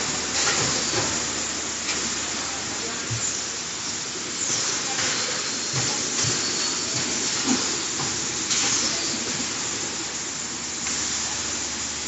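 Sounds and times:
packaging line hissing: 3.0s - 11.8s.

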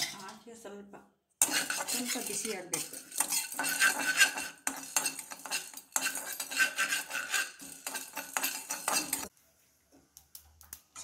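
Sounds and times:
spatula scraping roasting spices: 1.4s - 9.3s.

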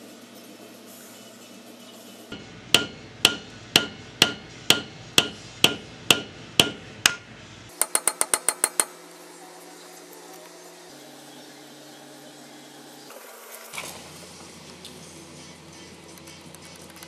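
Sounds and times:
hammer blows with metallic ring: 2.3s - 8.9s.

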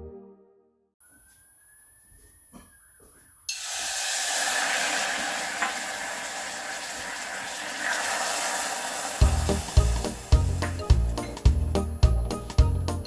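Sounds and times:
water pouring into a steel saucepan: 3.5s - 11.1s
lemon juice pouring: 3.5s - 11.2s.

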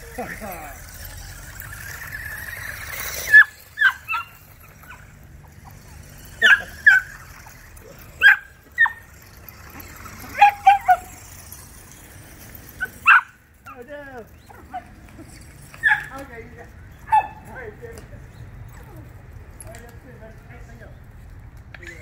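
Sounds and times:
electric motor whining: 0.0s - 16.3s.

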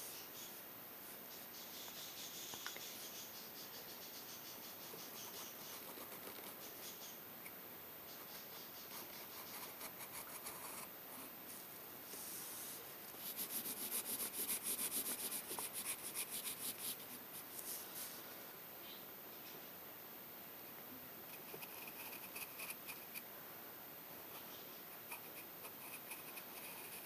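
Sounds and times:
pencil scratching on paper: 5.2s - 6.8s, 8.7s - 11.4s, 13.2s - 18.1s, 21.3s - 23.2s, 25.0s - 27.0s
fast pencil shading scratches: 8.7s - 11.3s, 13.2s - 17.1s, 21.3s - 23.2s, 25.0s - 27.0s.

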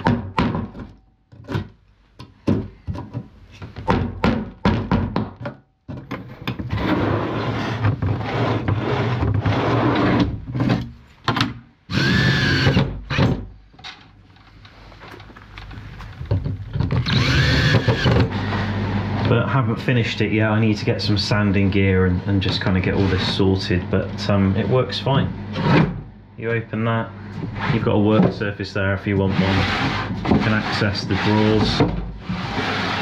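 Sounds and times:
knocks and thunks on wood: 0.0s - 6.7s
power tool whine: 11.9s - 12.9s, 17.0s - 19.3s
rasping tool noise: 11.9s - 12.9s, 16.8s - 19.3s, 29.2s - 33.0s.

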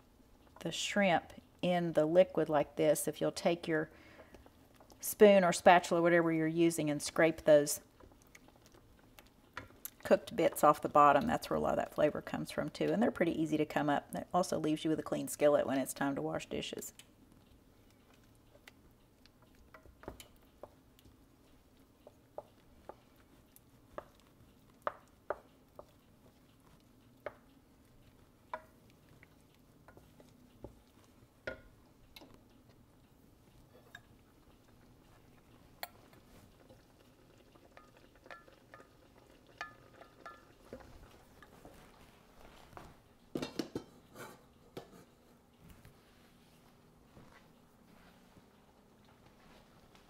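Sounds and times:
faint steady hum: 0.0s - 50.0s
spatula scraping a skillet: 22.0s - 31.8s.

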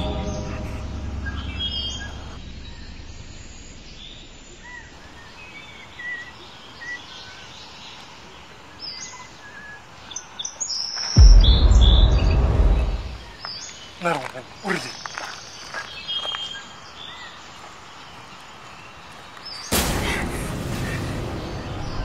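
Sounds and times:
birds chirping: 4.0s - 19.8s
loud deep rushing noise: 11.2s - 13.3s.

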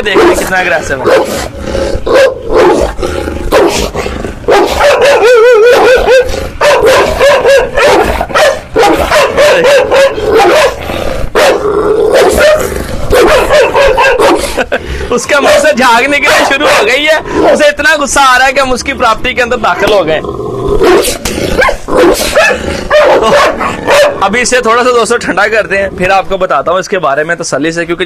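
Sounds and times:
dog barking aggressively: 0.0s - 14.7s, 15.3s - 17.8s, 20.8s - 24.3s
dog snarling: 0.1s - 17.6s, 19.8s - 24.2s.

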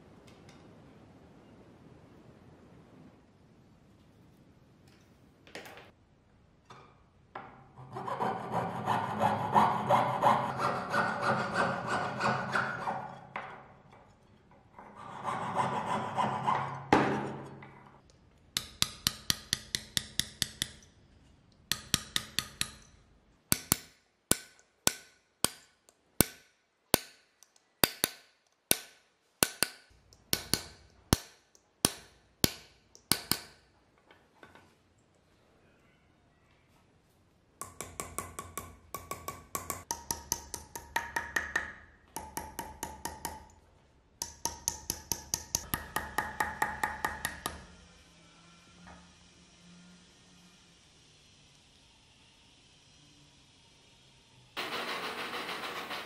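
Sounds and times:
hand tool rasping metal: 7.8s - 13.3s.

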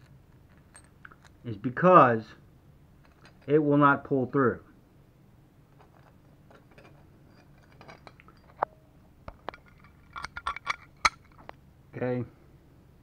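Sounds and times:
steel parts clinking and knocking: 0.0s - 1.4s, 3.0s - 3.5s, 5.8s - 11.5s.

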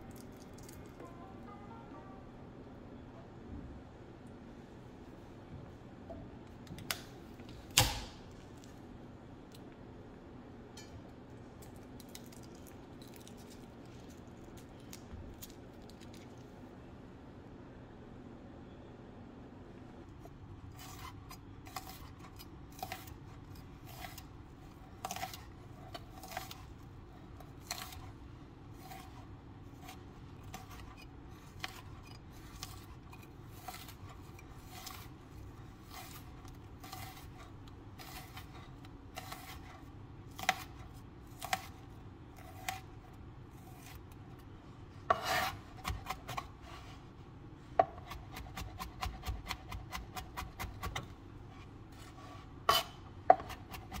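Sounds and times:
knife chopping on plastic board: 45.1s - 46.5s, 47.8s - 51.1s, 52.7s - 54.0s.

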